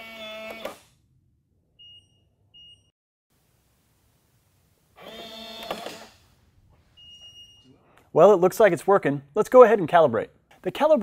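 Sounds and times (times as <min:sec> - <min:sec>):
lock motor whirring: 0:05.0 - 0:06.2.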